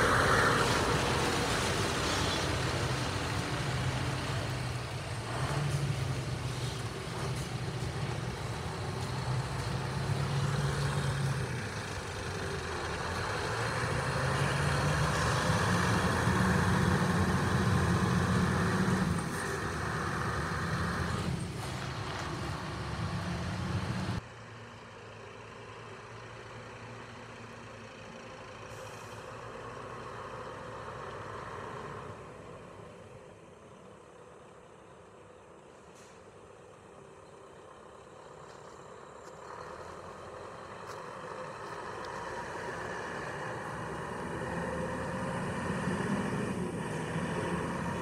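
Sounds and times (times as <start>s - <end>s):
diesel truck accelerating: 0.0s - 48.0s
brief air hiss: 35.9s - 36.3s.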